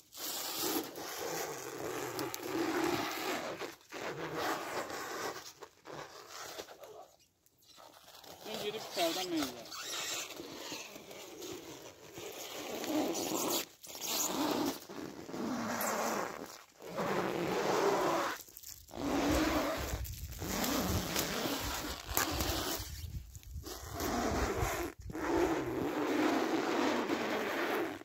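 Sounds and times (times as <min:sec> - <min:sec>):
plastic stretch film pulled off roll: 0:05.2 - 0:17.2, 0:18.2 - 0:24.1.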